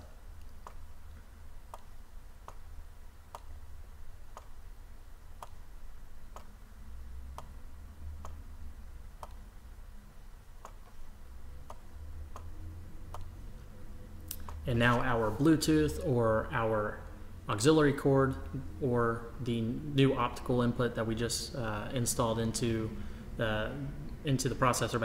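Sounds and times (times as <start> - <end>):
faint low hum: 0.0 - 25.0
computer mouse clicking: 0.4 - 0.8, 1.7 - 2.7, 3.3 - 3.5, 4.3 - 4.6, 5.4 - 5.6, 6.3 - 6.6, 7.3 - 7.6, 8.2 - 8.4, 9.2 - 9.4, 10.6 - 12.5, 13.1 - 13.3, 14.3 - 14.6.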